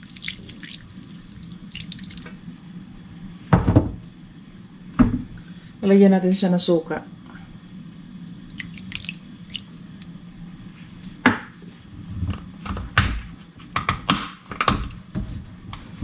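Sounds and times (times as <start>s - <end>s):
liquid trickling and dripping: 0.0s - 2.8s, 8.1s - 10.2s.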